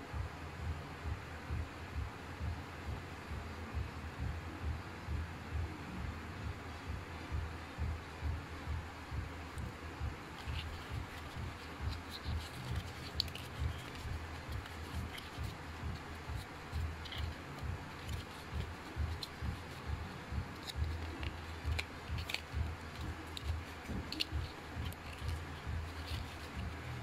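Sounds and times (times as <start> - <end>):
cardboard scraping and clicking: 10.4 - 15.6, 20.6 - 26.8.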